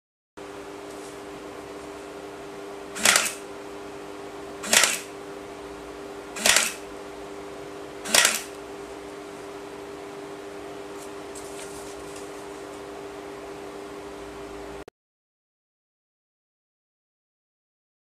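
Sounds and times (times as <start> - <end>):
electric stapler clacking: 3.0 - 3.5, 4.6 - 5.1, 6.4 - 6.9, 8.0 - 8.6.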